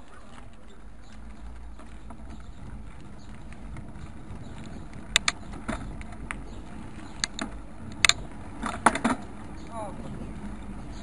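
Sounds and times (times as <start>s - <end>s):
low rumble of rolling on asphalt: 0.0s - 11.0s
sharp knocks and rattles: 1.8s - 9.6s.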